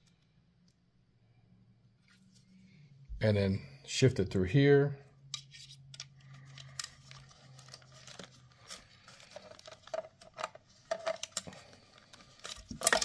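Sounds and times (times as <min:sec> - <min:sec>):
plastic clicks and scratches: 0:05.3 - 0:13.0.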